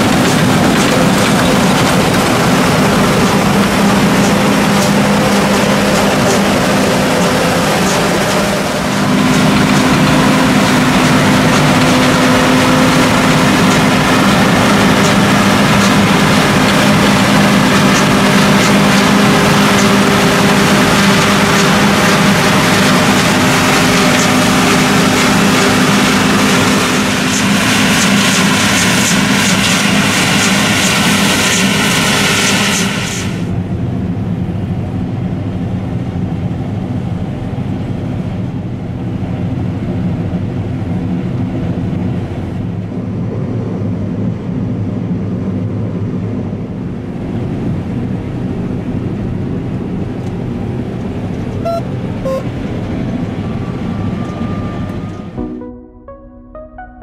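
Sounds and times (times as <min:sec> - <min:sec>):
combine harvester engine running: 0:00.0 - 0:55.7
faint short beeps: 0:51.7 - 0:52.5.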